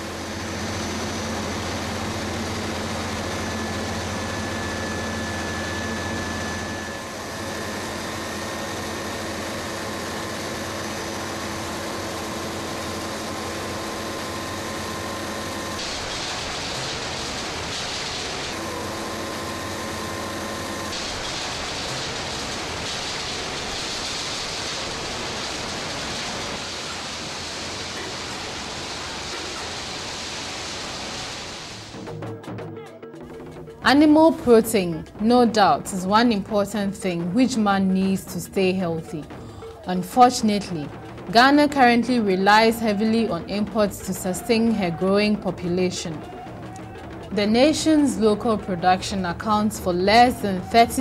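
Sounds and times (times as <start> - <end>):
machinery humming: 0.0 - 32.3, 33.3 - 51.0
loud even hiss: 15.8 - 18.6, 20.8 - 32.0.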